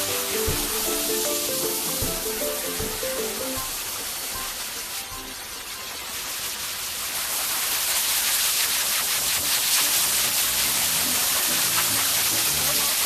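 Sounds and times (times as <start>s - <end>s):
background music: 0.0s - 5.4s.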